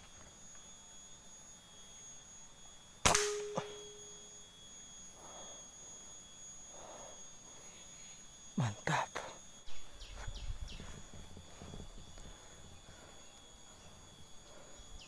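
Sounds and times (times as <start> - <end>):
air rifle shot: 3.0 - 3.9
short steady tone: 3.1 - 4.4.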